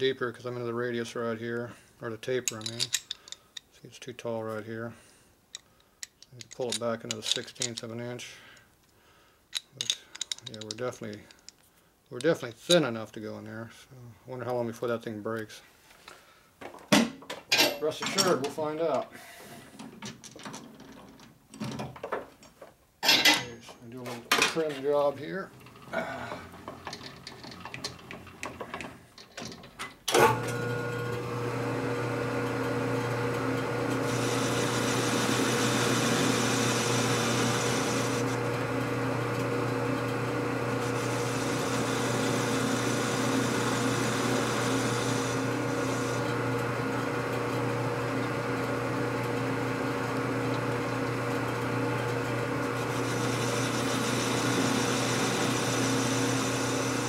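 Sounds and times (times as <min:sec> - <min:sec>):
machine tool motor humming: 0:30.2 - 0:57.0
harsh hissing metal cutting: 0:34.0 - 0:38.4, 0:40.8 - 0:46.4, 0:52.8 - 0:57.0.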